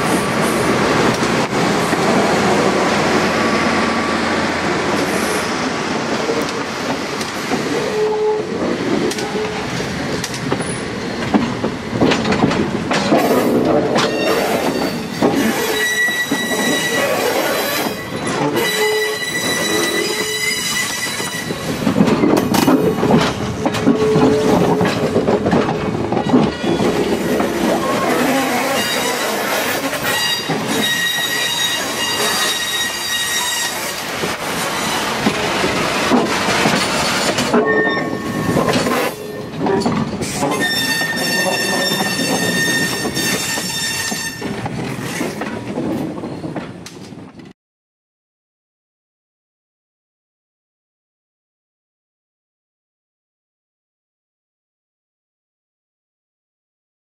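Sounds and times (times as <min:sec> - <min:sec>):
train wheels rolling: 0:00.0 - 0:47.5
train wheels squealing: 0:14.0 - 0:21.8, 0:26.2 - 0:34.0, 0:37.0 - 0:39.5, 0:40.3 - 0:44.6.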